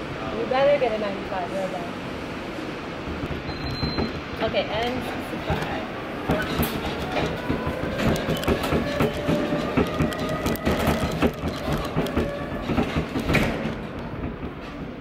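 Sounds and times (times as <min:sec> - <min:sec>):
machine rattling and knocking: 0:06.3 - 0:14.4.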